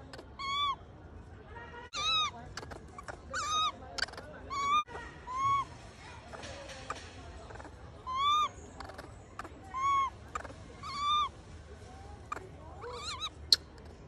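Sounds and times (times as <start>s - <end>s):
baby monkey crying: 0.0s - 0.8s, 1.9s - 5.7s, 7.5s - 11.3s, 12.8s - 13.3s.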